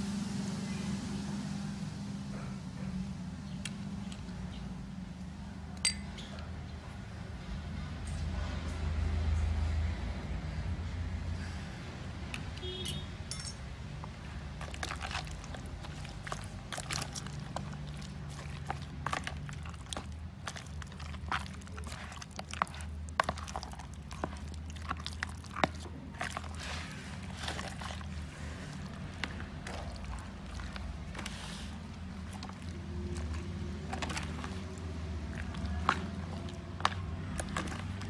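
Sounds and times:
wet squishing in plastic bowl: 11.9s - 13.0s, 13.8s - 38.0s.

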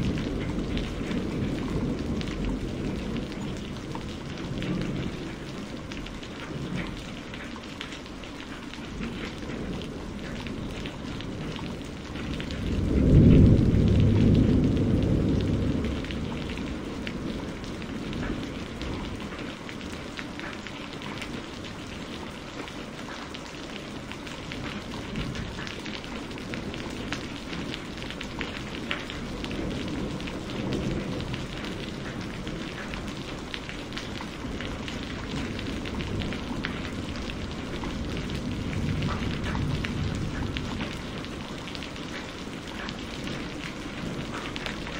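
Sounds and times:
thunder rumbling: 0.0s - 8.0s, 8.7s - 44.9s
steady rain patter: 0.0s - 44.9s.

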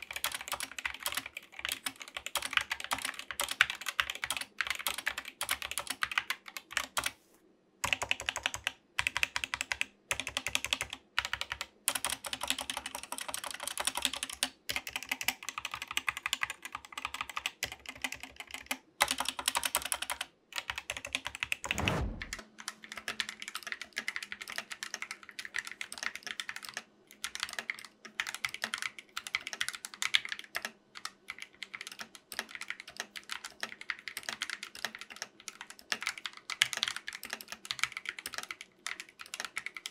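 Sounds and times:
mechanical keyboard typing: 0.0s - 7.1s, 7.8s - 39.9s
brief falling sweep: 21.7s - 22.4s.

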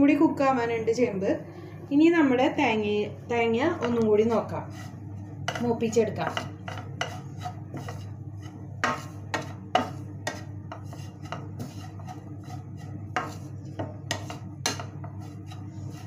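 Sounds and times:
steady low hum: 0.0s - 16.0s
spatula scraping metal pan: 3.8s - 16.0s.

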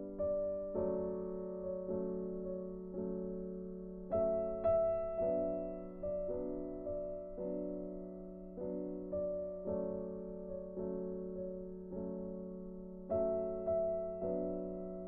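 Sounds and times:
slow piano melody: 0.0s - 15.0s.

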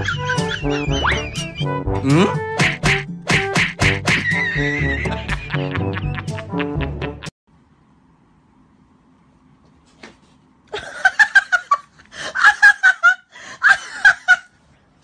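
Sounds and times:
person laughing high-pitched: 0.0s - 2.4s, 4.1s - 7.3s.

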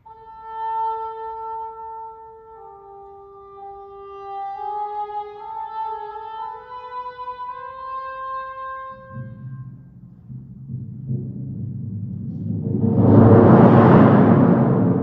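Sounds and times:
solo woodwind melody: 0.0s - 9.9s
timpani rolling rumble: 8.9s - 15.0s.

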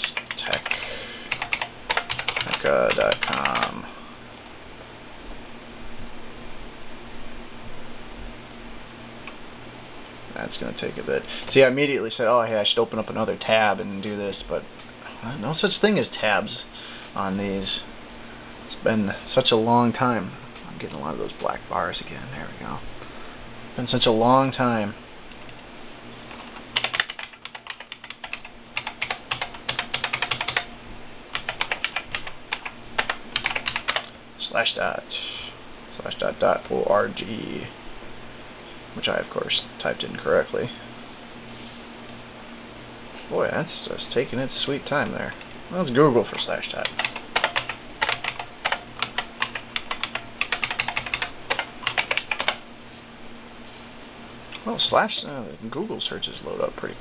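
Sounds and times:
typing on computer keyboard: 0.0s - 3.7s, 26.8s - 30.7s, 31.3s - 34.1s, 46.8s - 52.6s.

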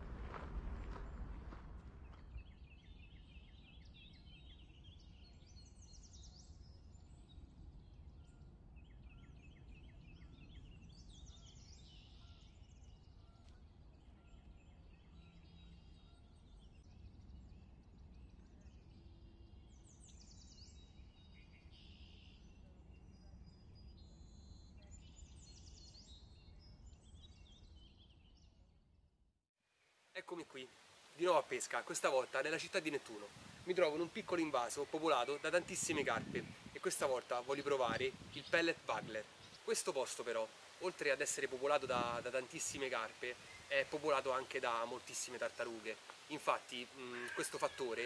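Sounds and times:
low outdoor rumble: 0.0s - 3.0s
birds chirping and trilling: 1.9s - 28.7s, 30.2s - 48.0s.

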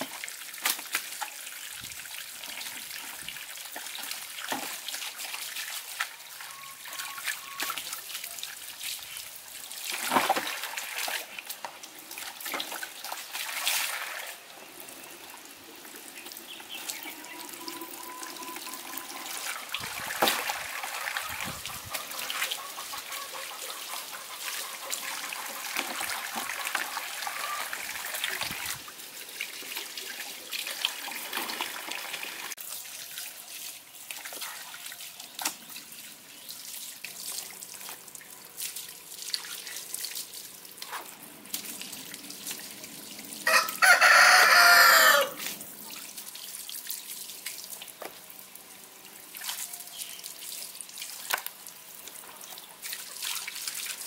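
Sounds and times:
rooster crowing: 43.4s - 45.4s
tap water splashing on concrete: 47.4s - 48.2s, 51.1s - 52.2s.

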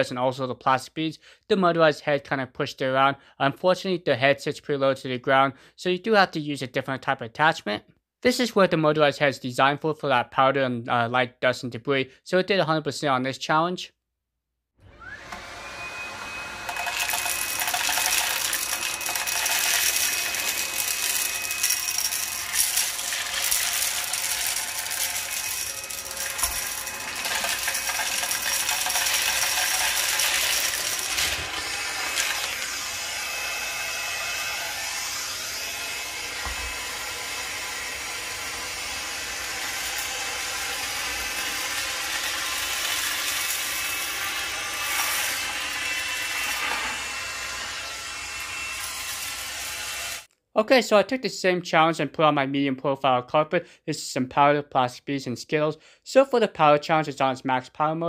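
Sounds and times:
vacuum motor whine: 14.8s - 50.2s
debris rattling up vacuum wand: 16.7s - 32.7s, 44.8s - 45.5s.

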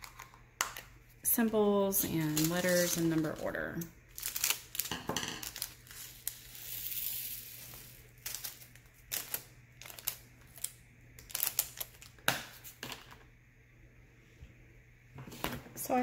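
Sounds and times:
plastic beads trickling into container: 2.1s - 12.1s.

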